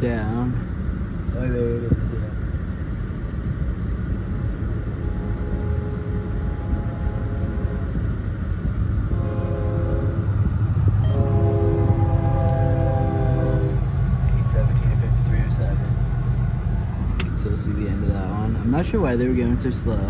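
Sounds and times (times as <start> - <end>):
diesel locomotives rumbling: 0.0 - 20.0
locomotive air horn chord: 5.0 - 8.0, 9.1 - 10.4, 11.0 - 13.9.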